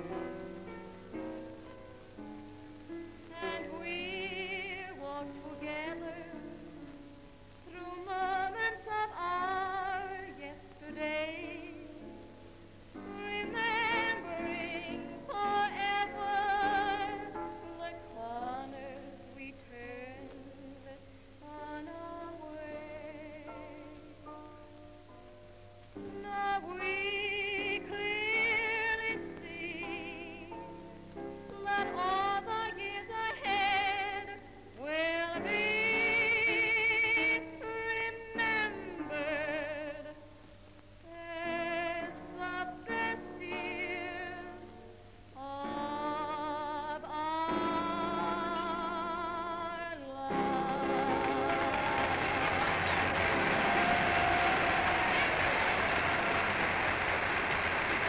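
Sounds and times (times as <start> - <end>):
musical accompaniment: 0.0 - 58.0
woman singing a slow ballad: 3.3 - 6.6, 7.6 - 12.0, 13.0 - 24.1, 26.1 - 30.6, 31.5 - 40.2, 41.0 - 52.5.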